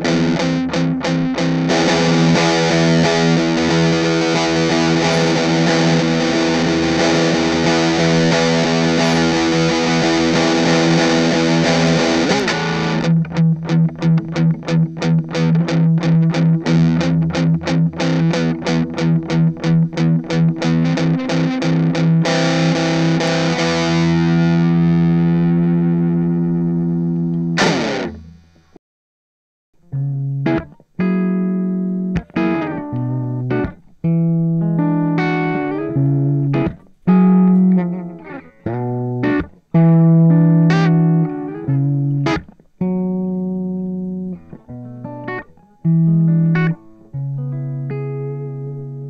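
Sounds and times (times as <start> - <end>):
overdriven electric guitar: 0.0 - 28.8, 29.8 - 49.0
guitar string scrape: 4.7 - 6.1, 7.9 - 10.3.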